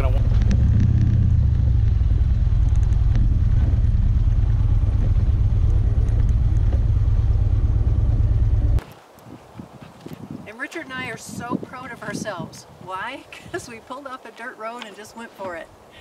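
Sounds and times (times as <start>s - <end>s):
motorcycle engine rumble: 0.0s - 8.8s.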